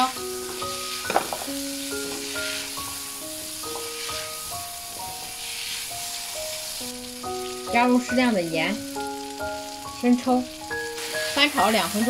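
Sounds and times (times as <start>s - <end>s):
background music of held notes: 0.0s - 12.0s
vegetables sizzling in a wok: 0.0s - 12.0s
spatula turning food: 0.3s - 7.8s, 10.8s - 12.0s.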